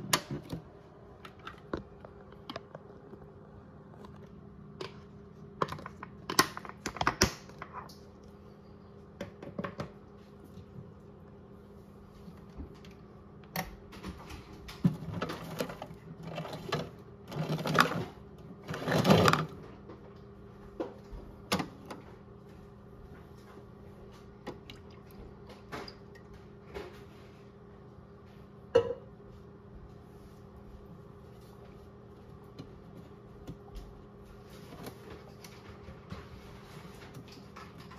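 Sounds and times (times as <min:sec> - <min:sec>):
water sloshing and splashing: 0:24.1 - 0:26.8.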